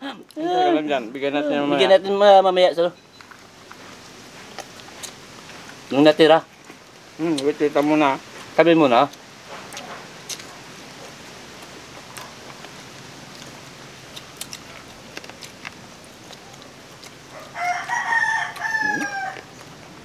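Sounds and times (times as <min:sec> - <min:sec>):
people eating by hand: 0:00.0 - 0:20.0
rooster crowing: 0:17.3 - 0:19.6.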